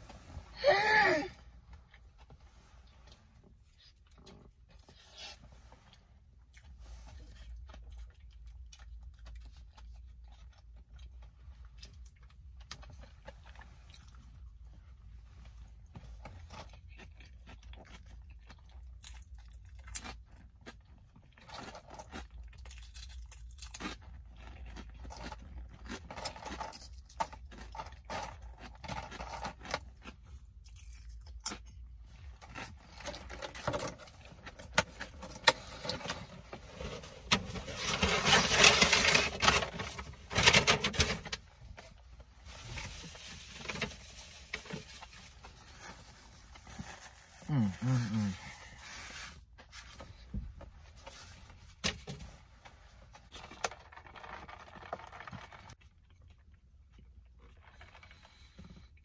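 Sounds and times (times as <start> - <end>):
rustling of food handling: 0.0 - 59.0
person chewing: 16.4 - 37.0.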